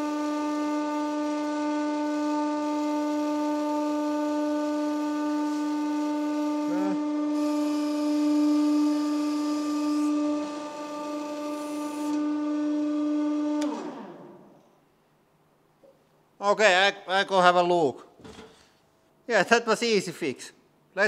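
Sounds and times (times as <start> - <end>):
hydraulic pump hum: 0.0 - 16.1.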